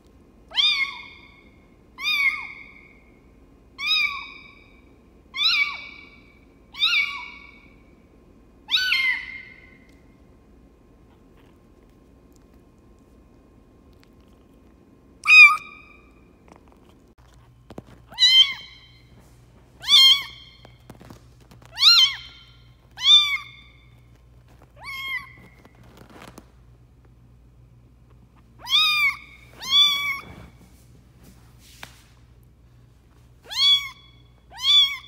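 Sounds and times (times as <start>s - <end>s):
kitten meowing: 15.2s - 16.0s, 19.8s - 20.6s, 21.7s - 22.4s, 23.0s - 23.8s, 24.8s - 25.6s, 28.6s - 30.4s, 33.5s - 35.0s.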